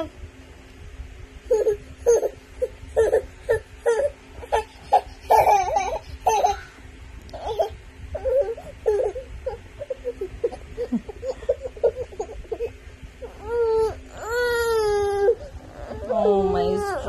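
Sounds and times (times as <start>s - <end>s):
baby whining cries: 1.5s - 17.0s.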